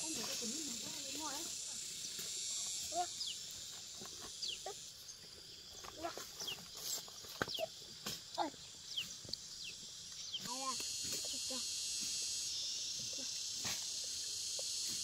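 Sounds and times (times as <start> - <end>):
steady high hiss: 0.0 - 15.0.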